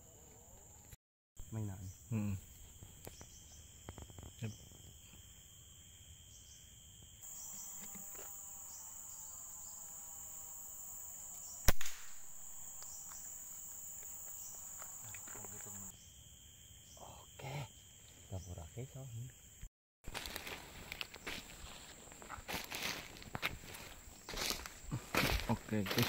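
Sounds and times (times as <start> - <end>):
high drone of insects: 0.0 - 26.0
air rifle shot: 11.6 - 12.4.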